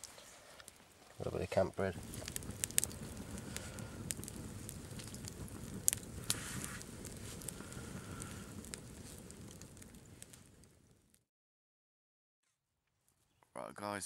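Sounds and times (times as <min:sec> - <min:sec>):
campfire flames rushing: 0:00.0 - 0:11.2
fire crackling and popping: 0:00.0 - 0:11.3.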